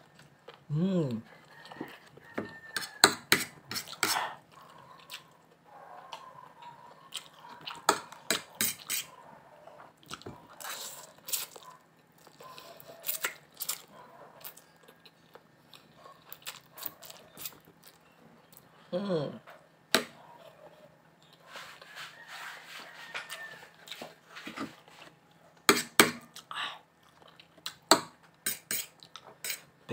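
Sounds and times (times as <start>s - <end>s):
wet chewing and smacking: 1.4s - 9.1s, 9.8s - 18.7s, 25.6s - 29.5s.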